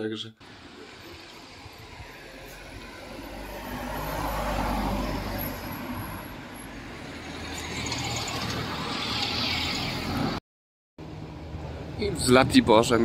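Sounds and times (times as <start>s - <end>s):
motor vehicles passing: 0.4s - 10.4s.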